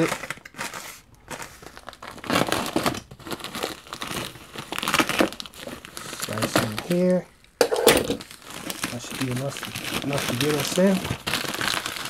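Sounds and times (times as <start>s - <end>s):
plastic mailer crinkling: 0.0s - 12.0s
plastic tearing: 0.0s - 12.0s.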